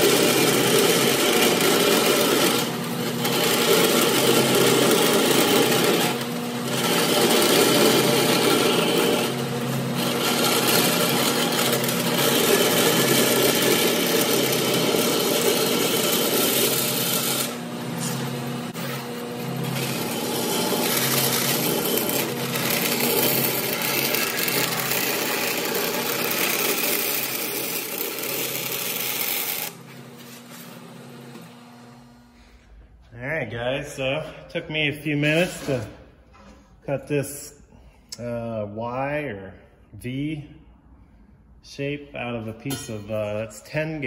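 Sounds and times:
bandsaw cutting steel: 0.0 - 32.3, 35.1 - 35.9, 42.6 - 44.0
machine running hum: 0.0 - 36.6.

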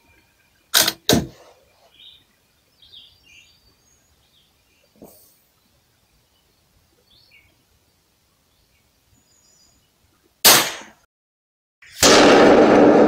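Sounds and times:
rifle shot: 10.4 - 11.0, 11.9 - 13.0.

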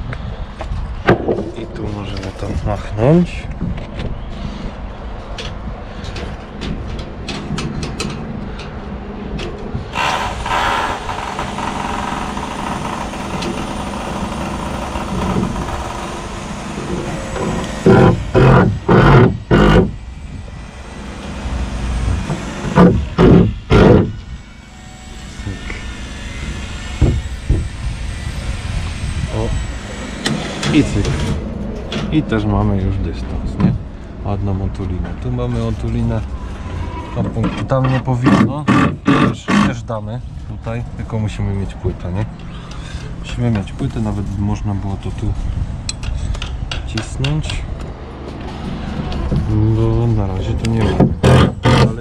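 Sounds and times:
low mechanical rumble: 0.0 - 52.0
loud knocks: 1.0 - 1.7, 16.8 - 20.0, 22.1 - 24.2, 50.8 - 52.0.

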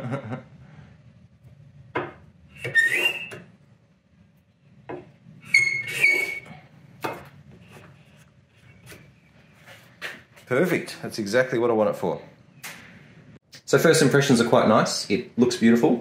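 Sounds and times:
hand plane scraping wood: 2.6 - 3.4.

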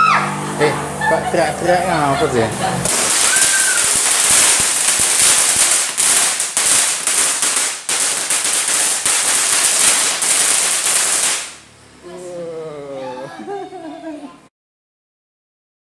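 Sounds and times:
firework crackling and hissing: 1.4 - 11.7.

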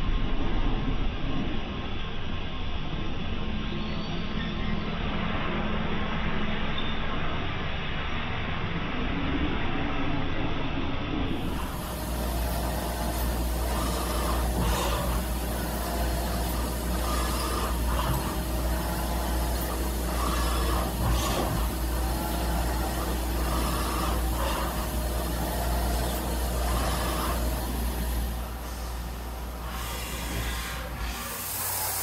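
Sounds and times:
machine low hum: 10.7 - 32.0
coolant hiss: 11.3 - 32.0.

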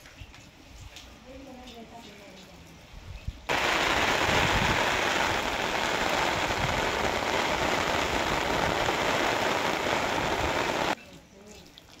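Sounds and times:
steady rain: 3.4 - 11.0.

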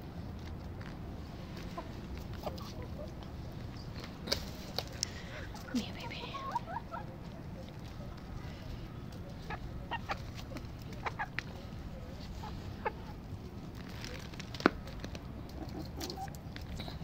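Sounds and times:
chicks clucking softly: 1.4 - 13.5, 15.3 - 16.8.

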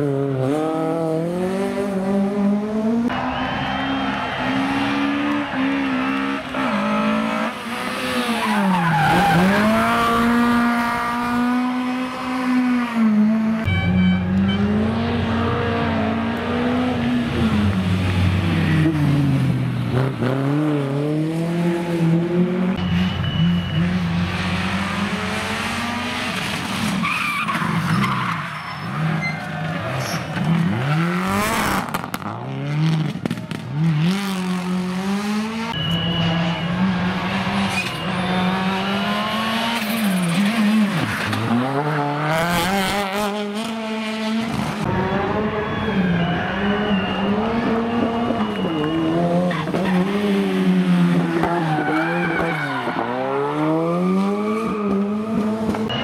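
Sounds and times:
rally car engines revving: 0.0 - 56.0
tyre squeal: 27.0 - 30.4.

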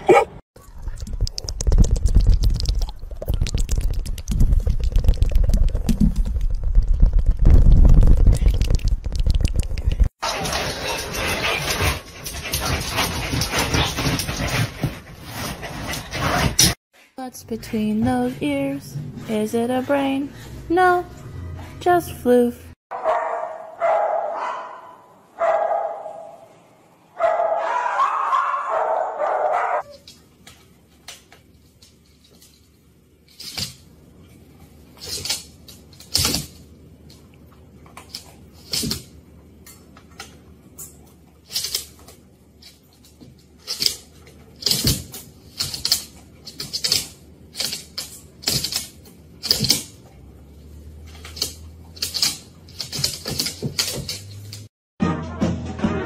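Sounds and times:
dog barking: 0.0 - 0.4, 22.9 - 26.5, 27.2 - 29.9
dogs play-fighting clicks and scuffles: 0.9 - 16.8, 34.9 - 50.3, 50.9 - 54.7.

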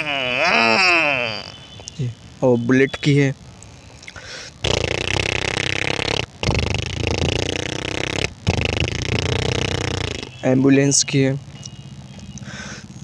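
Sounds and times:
person imitating motorcycle engine: 0.0 - 1.6, 4.6 - 10.3.

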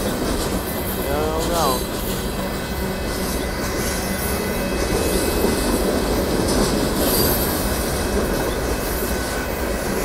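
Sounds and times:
train wheels rumbling on rails: 0.0 - 10.0
wheel squeal: 7.0 - 7.8.

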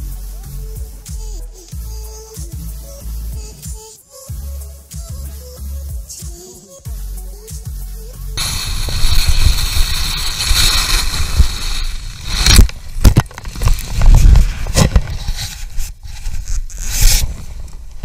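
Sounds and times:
heavy thumps of skier crashing: 8.4 - 15.8
skis scraping snow: 8.4 - 17.7
wind on microphone: 8.4 - 18.0.

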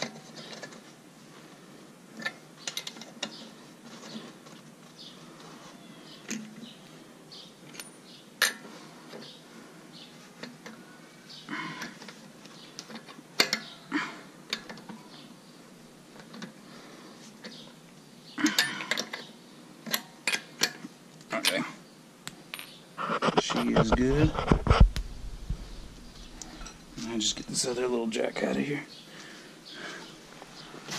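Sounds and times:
metal tools clinking: 26.4 - 27.7.

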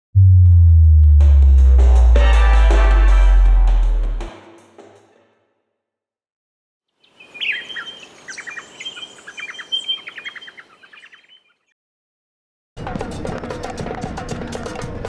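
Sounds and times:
birds chirping and singing: 7.0 - 11.7.

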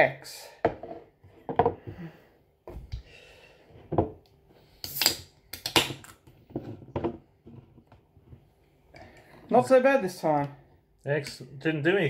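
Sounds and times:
can hissing cracks: 4.8 - 5.9.

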